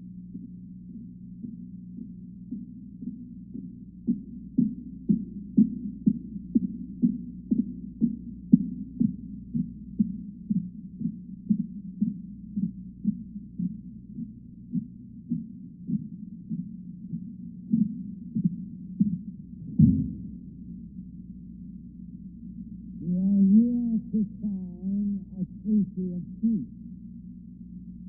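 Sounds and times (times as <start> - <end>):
muffled low hum: 0.0 - 28.0
regular muffled thump: 17.7 - 20.4.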